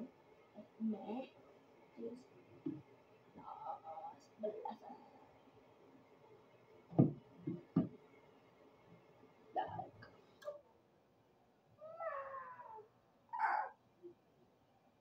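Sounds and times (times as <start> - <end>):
cat meowing: 11.8 - 13.8.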